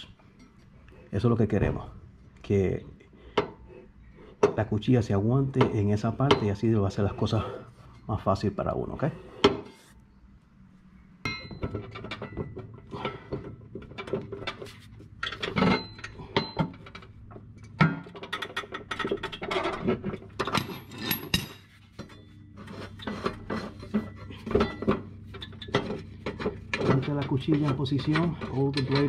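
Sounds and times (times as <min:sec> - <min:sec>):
metal clinks: 0:11.2 - 0:13.2, 0:20.4 - 0:23.1.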